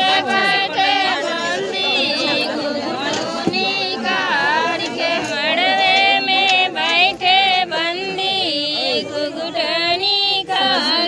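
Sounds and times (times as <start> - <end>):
women singing held notes: 0.0 - 11.0.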